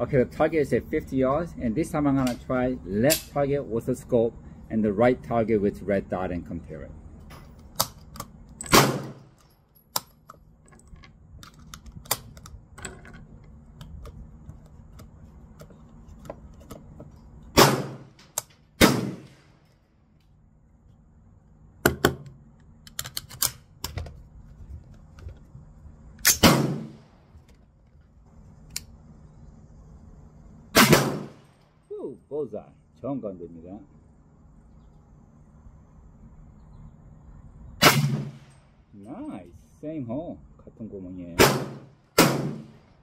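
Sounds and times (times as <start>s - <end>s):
rifle shots: 8.7s - 9.3s, 17.6s - 18.2s, 18.8s - 19.5s, 26.3s - 27.1s, 30.8s - 31.5s, 37.8s - 38.6s, 41.4s - 42.8s.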